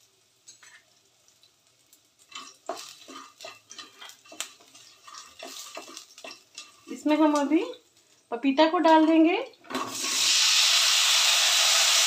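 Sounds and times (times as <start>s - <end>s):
wooden spatula scraping metal pan: 2.3s - 7.5s.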